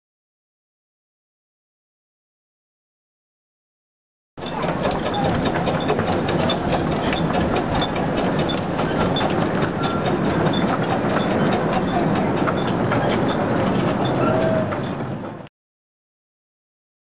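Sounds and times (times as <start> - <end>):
rapid clicking: 4.4 - 15.4
steam locomotive hauling carriages: 4.4 - 15.5.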